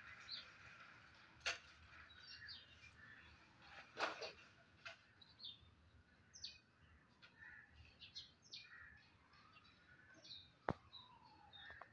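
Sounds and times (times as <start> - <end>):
small birds chirping: 1.9 - 11.9.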